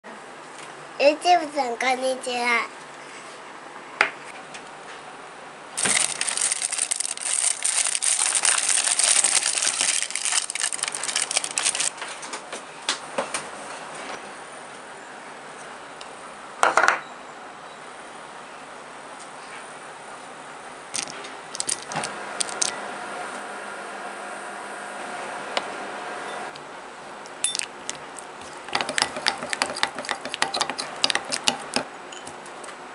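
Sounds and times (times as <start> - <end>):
foil wrapper crinkling: 5.8 - 12.2
microwave oven humming: 21.9 - 27.6.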